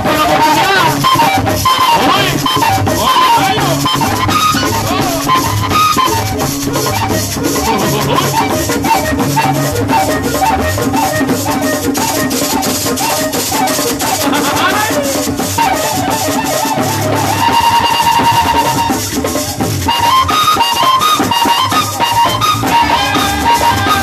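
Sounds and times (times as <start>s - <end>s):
pulsing bass: 0.0s - 9.2s
drums: 0.0s - 24.0s.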